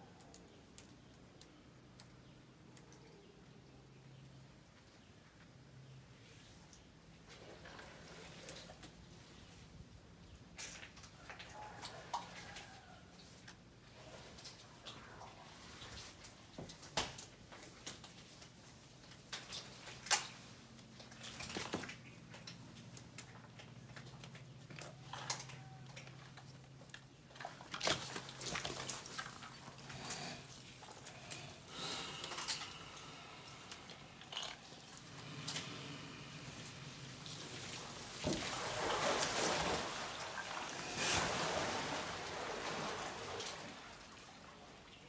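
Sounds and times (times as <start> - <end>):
crocodiles crunching snail shells: 23.2 - 36.6.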